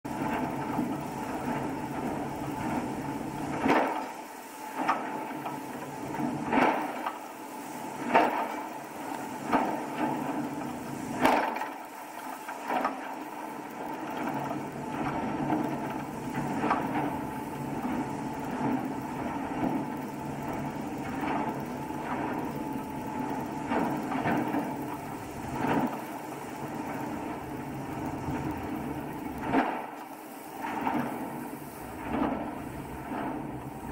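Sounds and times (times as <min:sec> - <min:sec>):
boat engine drone: 0:05.3 - 0:33.9.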